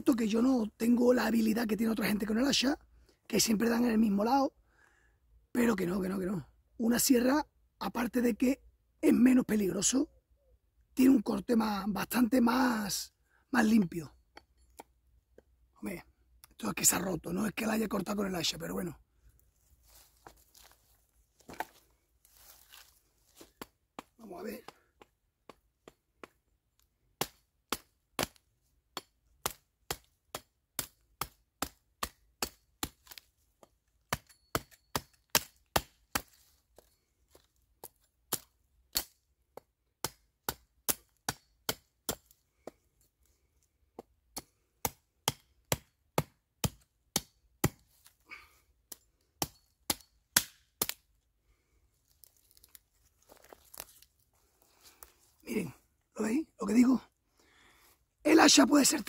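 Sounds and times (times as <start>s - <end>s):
hatchet chopping branch: 23.3s - 42.9s, 43.9s - 51.1s.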